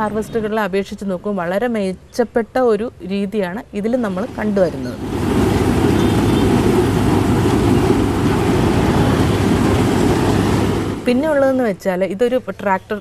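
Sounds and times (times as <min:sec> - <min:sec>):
combine harvester running: 0:05.0 - 0:11.1.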